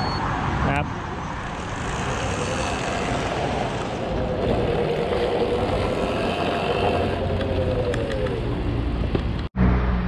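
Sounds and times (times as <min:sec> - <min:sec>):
electric motor whine: 0:01.7 - 0:08.6.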